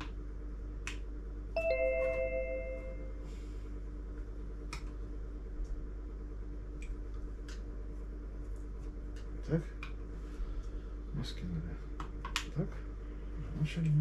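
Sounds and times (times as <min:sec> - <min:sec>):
low steady hum: 0:00.0 - 0:14.0
two-note electronic chime: 0:01.6 - 0:03.2.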